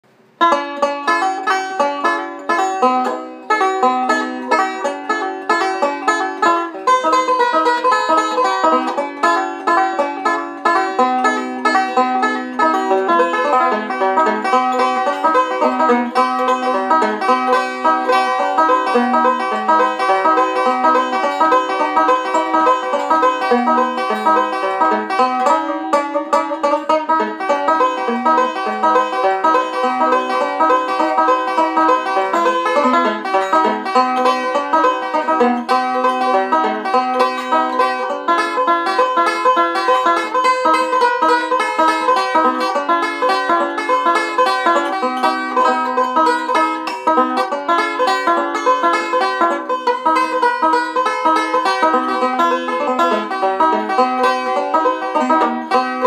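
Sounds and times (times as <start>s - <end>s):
banjo picking fast rolls: 0.2s - 56.0s.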